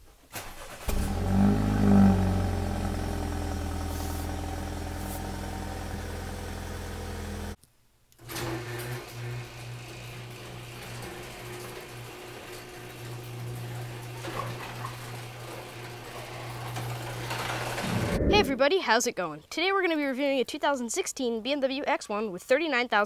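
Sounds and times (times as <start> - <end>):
car engine starting and idling: 0.4 - 7.6
electric garage door opener: 0.9 - 7.6, 8.2 - 17.9.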